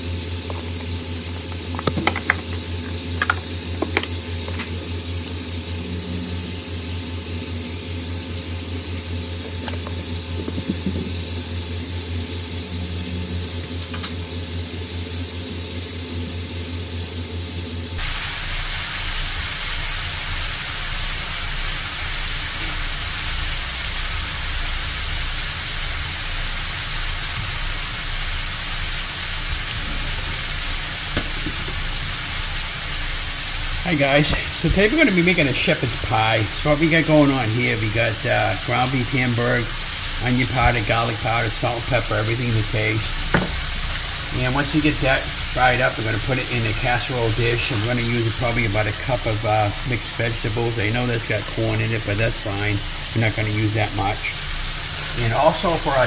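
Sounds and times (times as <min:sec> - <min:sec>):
meat sizzling in a pan: 0:00.0 - 0:56.0
low hum: 0:00.5 - 0:18.0.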